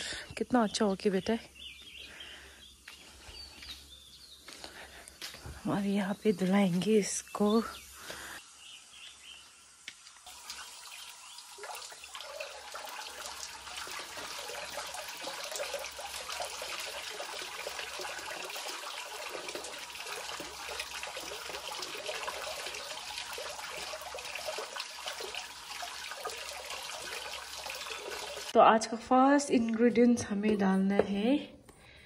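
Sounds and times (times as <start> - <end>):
tap water splashing: 9.8 - 28.5.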